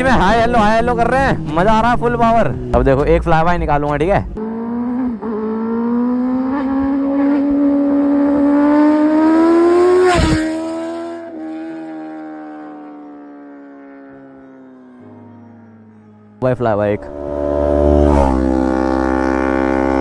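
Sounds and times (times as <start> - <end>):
motorcycle engine passing by: 4.4 - 20.0.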